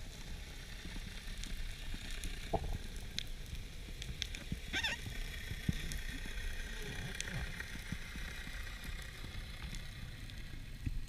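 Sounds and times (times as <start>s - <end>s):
underwater rumble of water: 0.0s - 11.0s
clicks and crackles: 0.1s - 11.0s.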